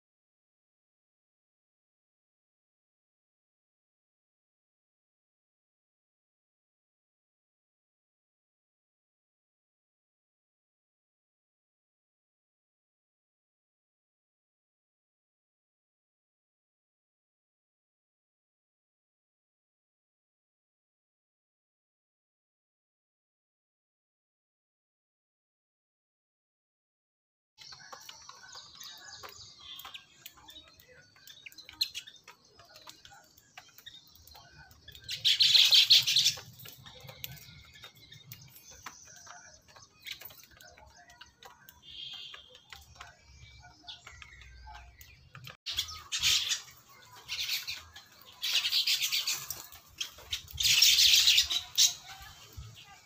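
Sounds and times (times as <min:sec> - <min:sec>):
birds chirping: 0:27.6 - 0:53.0
harsh bird chatter: 0:27.6 - 0:53.0.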